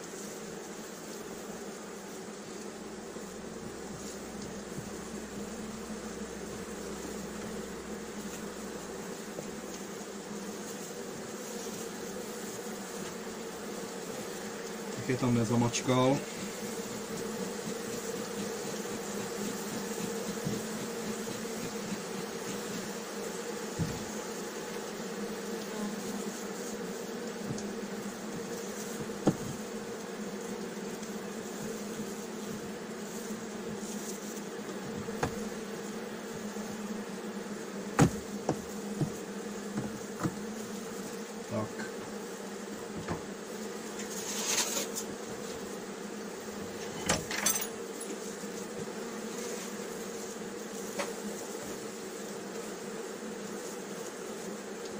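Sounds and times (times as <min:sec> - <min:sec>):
honeybees buzzing: 0:00.0 - 0:54.9
sharp knocks: 0:29.0 - 0:29.6, 0:38.0 - 0:40.4.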